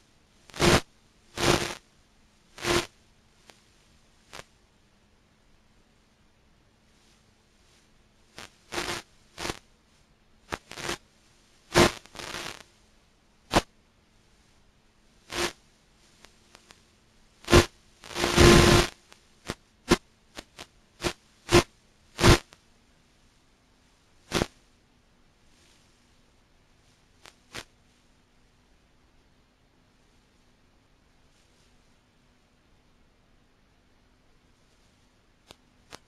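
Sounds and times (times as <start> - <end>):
static crackle bursts: 0.0 - 1.9, 2.5 - 4.6, 7.0 - 12.8, 13.4 - 13.7, 14.4 - 22.7, 24.2 - 24.6, 26.8 - 27.8, 35.4 - 36.0
faint steady hum: 0.0 - 36.0.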